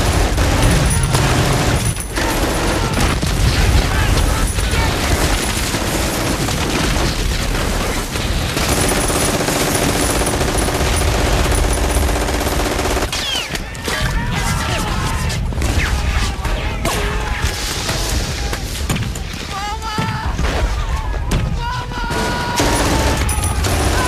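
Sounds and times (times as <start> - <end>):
explosions: 0.0 - 8.9
gunfire: 0.0 - 14.1, 22.1 - 24.0.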